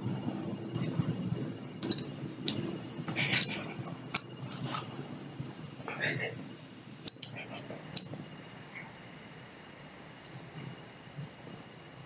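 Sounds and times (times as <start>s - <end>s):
metal dog tag clinking: 1.8s - 2.1s, 3.1s - 3.6s, 7.1s - 8.2s.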